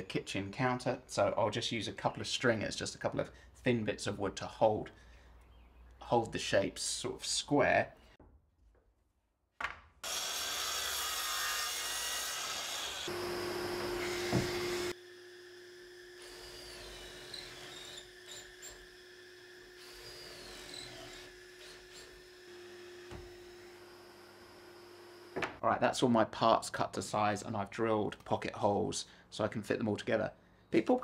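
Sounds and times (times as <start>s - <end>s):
cordless drill boring into plywood: 10.0s - 25.4s.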